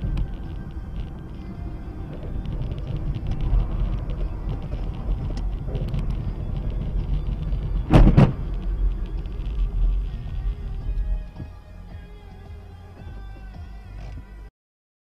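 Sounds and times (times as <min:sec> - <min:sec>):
vehicle road rumble: 0:00.0 - 0:14.5
car crash bangs: 0:07.8 - 0:08.7.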